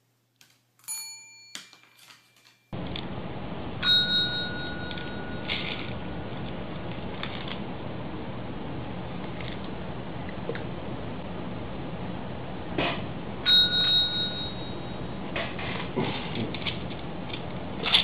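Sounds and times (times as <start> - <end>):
service bell ding: 0.9 - 1.8, 3.8 - 5.7, 13.5 - 15.1.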